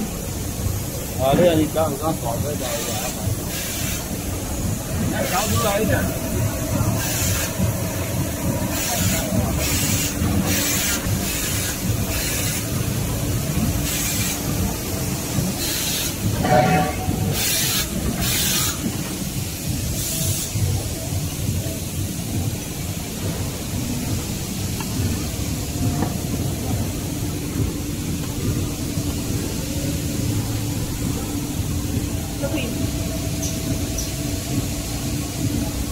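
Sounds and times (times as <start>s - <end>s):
machinery humming and rumbling: 0.0s - 35.9s
short air hisses: 17.3s - 18.9s.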